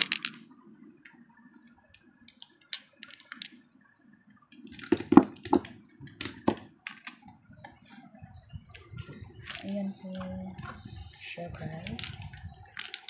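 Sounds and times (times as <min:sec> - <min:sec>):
glass bottles clicking on plastic: 0:04.6 - 0:07.3, 0:11.6 - 0:13.0.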